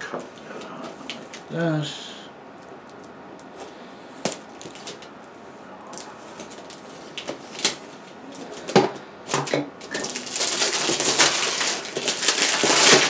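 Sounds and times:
knife clicking on shrink-wrap: 0:10.0 - 0:13.0.

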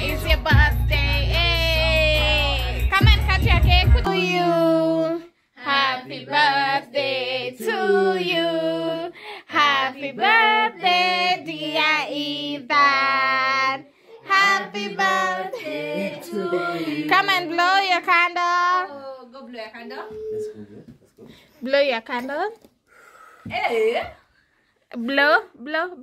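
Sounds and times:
child singing: 0:00.0 - 0:17.3
woman singing: 0:00.0 - 0:17.9.

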